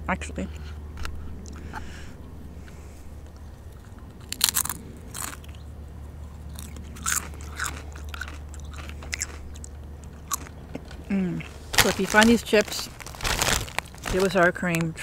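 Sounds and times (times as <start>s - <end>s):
tortilla chips crunching: 3.3s - 15.0s.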